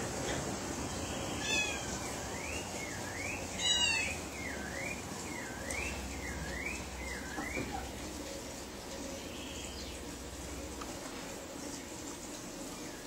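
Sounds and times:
loud full bird call: 0:00.9 - 0:07.9
bird singing whistled notes: 0:04.4 - 0:07.7.

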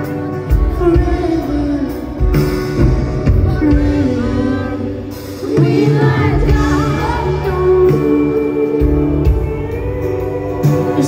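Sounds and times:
live band playing pop song: 0:00.0 - 0:11.0
woman singing: 0:03.1 - 0:11.0.

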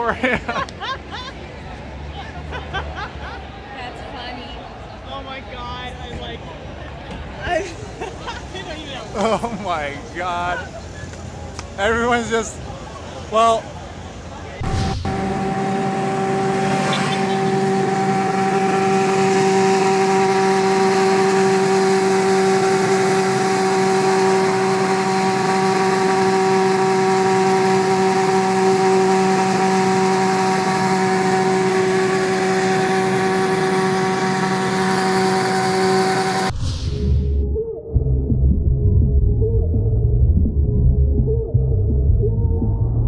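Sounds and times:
road noise inside car: 0:12.6 - 0:36.6
motorcycle engine droning: 0:14.6 - 0:36.6.

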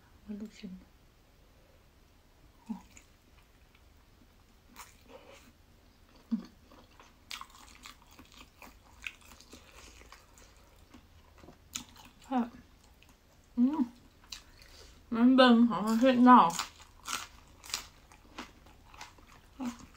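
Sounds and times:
biting and chewing food: 0:06.1 - 0:14.8, 0:15.9 - 0:19.9.

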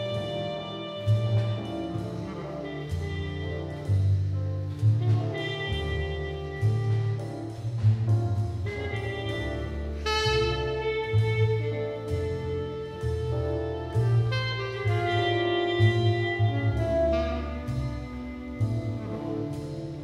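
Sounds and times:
jazz band playing: 0:00.0 - 0:20.0
bright horn note: 0:10.0 - 0:10.8.

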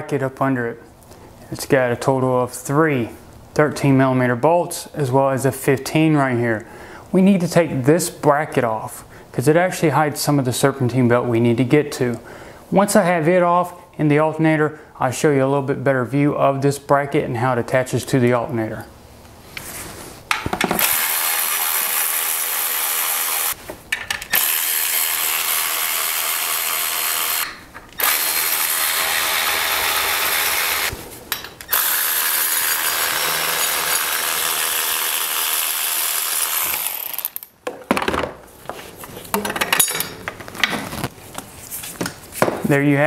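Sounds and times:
cordless ratchet running: 0:24.3 - 0:30.9, 0:31.7 - 0:37.4.

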